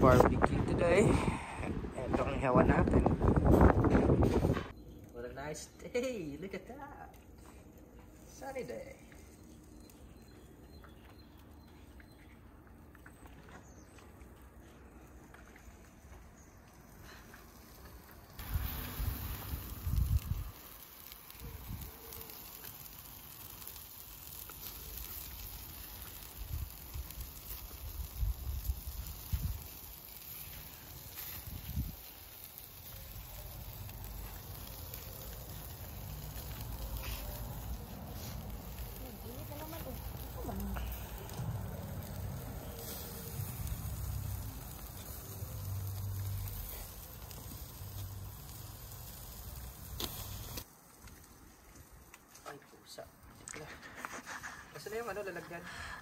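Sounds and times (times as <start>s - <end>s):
wind buffeting microphone: 0.0s - 4.7s, 18.4s - 20.6s, 27.8s - 29.7s, 31.4s - 32.0s
faint crackles: 5.9s - 56.0s
meat sizzling on a grill: 16.0s - 53.0s.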